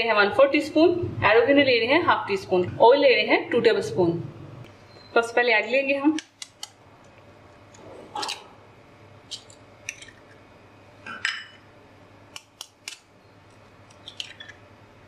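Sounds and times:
eggshells cracking: 13.8s - 14.6s.

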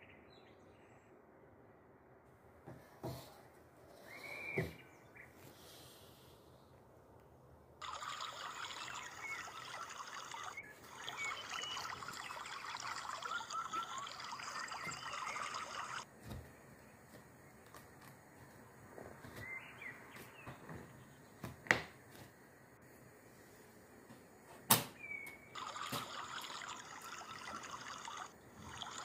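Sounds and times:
trickling hiss: 7.8s - 16.0s, 25.6s - 29.0s.

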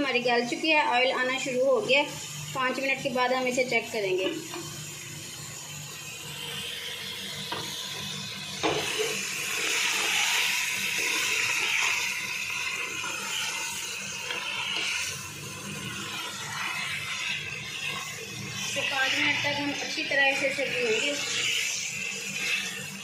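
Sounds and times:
meat sizzling in oil: 0.0s - 23.0s
wooden spoon stirring in pot: 7.9s - 23.0s.

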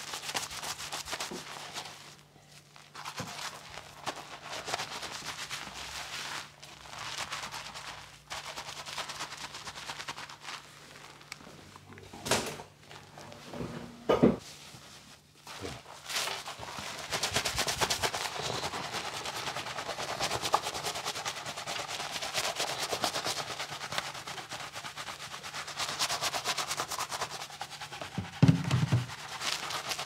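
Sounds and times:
shampoo foam squishing: 2.8s - 11.6s.

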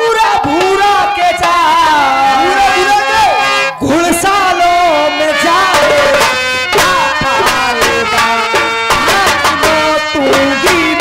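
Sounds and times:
wavering folk melody: 0.1s - 11.0s
hand drum beat: 5.7s - 11.0s.

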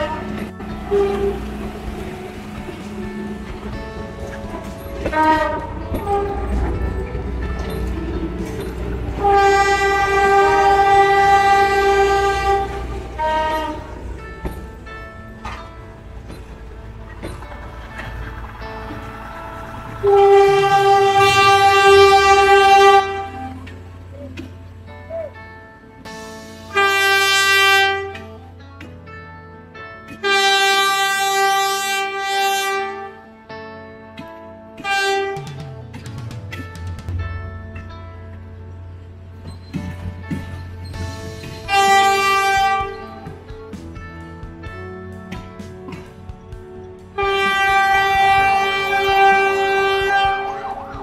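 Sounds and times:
train horn blasts: 0.0s - 25.3s, 26.1s - 28.6s, 30.1s - 33.5s, 34.1s - 35.7s, 40.9s - 43.8s, 45.1s - 51.0s
train rumbling past: 0.0s - 28.6s, 34.2s - 51.0s
soft background music: 0.0s - 51.0s.

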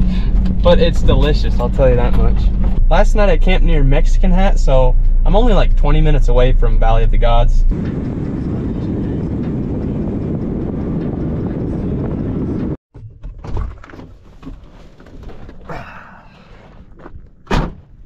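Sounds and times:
road and wind noise in van cab: 0.0s - 18.0s
sharp thunk: 17.4s - 17.9s.

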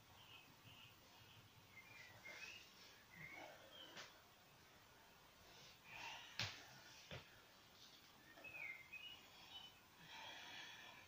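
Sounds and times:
faint high chirps: 8.2s - 9.9s.

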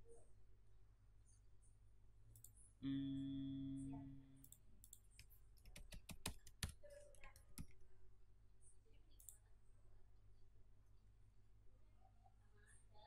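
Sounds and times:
loud steady humming tone: 2.8s - 4.4s
computer keyboard clicks: 4.5s - 7.8s.

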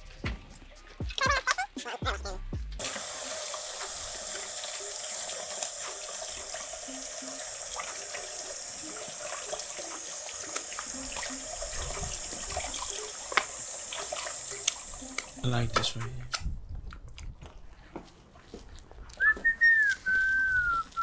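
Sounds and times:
meat sizzling on a grill: 2.8s - 15.4s.

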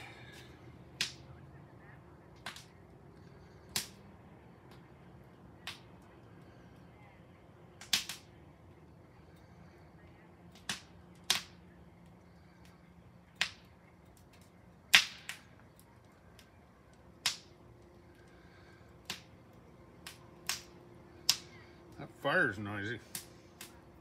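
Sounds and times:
fire popping and crackling: 0.0s - 24.0s.

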